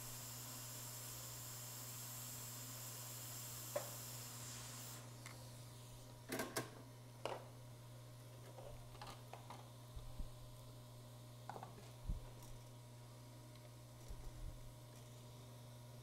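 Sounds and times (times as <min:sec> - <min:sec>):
hot air blower hissing: 0:00.0 - 0:06.2.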